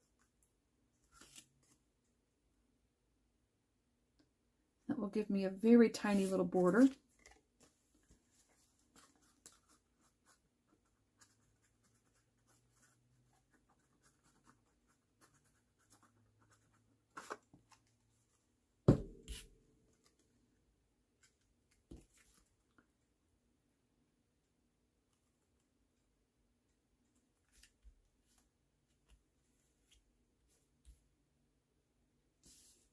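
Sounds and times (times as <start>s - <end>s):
paper rustling and sliding: 1.0s - 1.8s, 6.1s - 10.4s.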